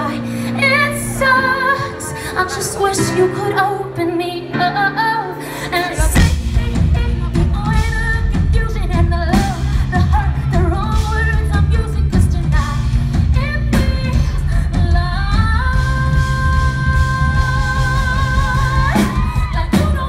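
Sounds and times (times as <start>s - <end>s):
woman singing: 0.0s - 20.0s
drums: 5.3s - 20.0s
bass: 5.8s - 20.0s.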